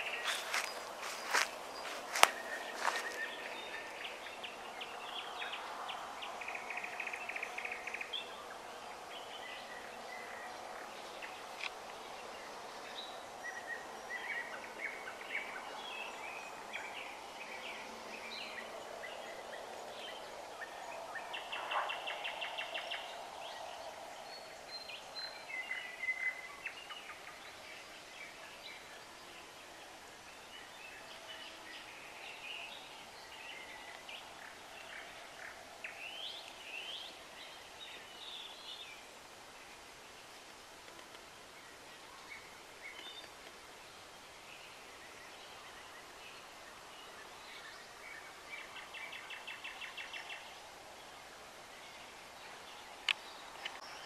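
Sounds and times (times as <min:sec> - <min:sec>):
faint background noise: 0:00.0 - 0:54.0
songbirds singing and chirping: 0:00.0 - 0:54.0.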